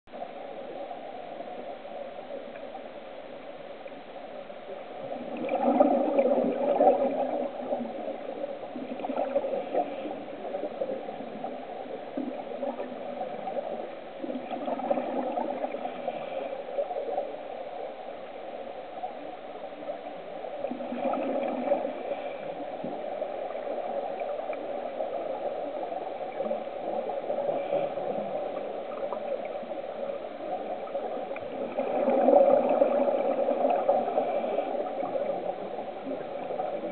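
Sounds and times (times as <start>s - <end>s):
muffled rush of water: 0.1s - 36.9s
regulator bubbles gurgling: 4.7s - 17.4s, 20.4s - 36.9s.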